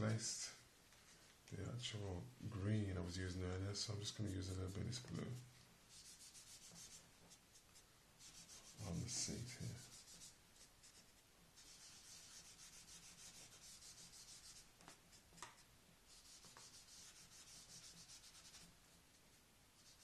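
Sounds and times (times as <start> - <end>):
hand rubbing pastel on paper: 3.1 - 18.8, 19.8 - 20.0.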